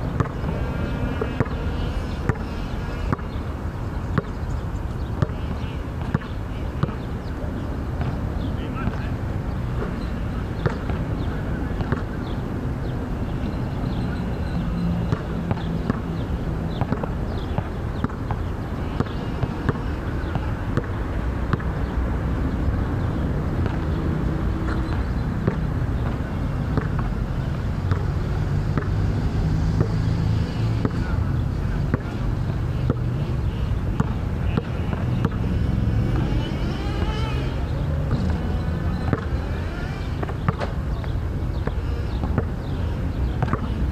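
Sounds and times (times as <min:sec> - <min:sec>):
basketball bouncing: 0:00.1 - 0:01.6, 0:02.2 - 0:03.4, 0:04.1 - 0:04.4, 0:05.2 - 0:07.0, 0:10.6 - 0:11.1, 0:11.8 - 0:12.2, 0:15.0 - 0:21.7, 0:23.6 - 0:24.0, 0:24.7 - 0:27.1, 0:27.9 - 0:28.2, 0:28.8 - 0:29.0, 0:32.8 - 0:33.1, 0:33.9 - 0:36.3, 0:38.0 - 0:39.6, 0:40.2 - 0:41.0, 0:41.6 - 0:42.6, 0:43.3 - 0:43.8.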